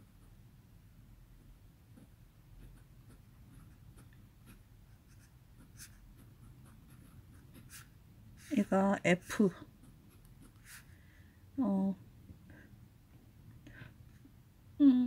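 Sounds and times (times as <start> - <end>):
fountain pen scratching on paper: 1.9 - 10.9.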